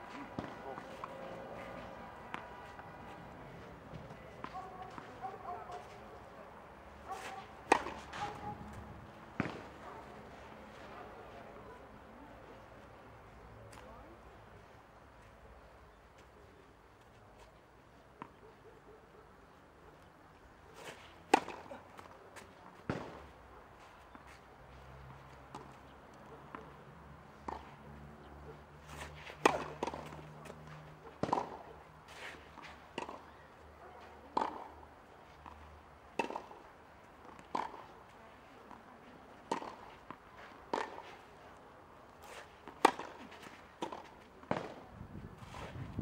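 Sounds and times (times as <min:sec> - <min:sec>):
racket striking tennis ball: 0:00.1 - 0:06.0, 0:07.1 - 0:10.1, 0:20.8 - 0:22.1, 0:28.8 - 0:33.2, 0:34.3 - 0:34.7, 0:36.2 - 0:36.6, 0:37.2 - 0:37.9, 0:39.5 - 0:41.3, 0:42.2 - 0:45.9
tennis ball bouncing on clay: 0:00.1 - 0:06.0, 0:07.1 - 0:10.3, 0:21.3 - 0:23.4, 0:25.5 - 0:31.7, 0:32.4 - 0:33.4, 0:34.0 - 0:34.8, 0:35.4 - 0:37.9, 0:38.7 - 0:41.4, 0:42.2 - 0:46.0.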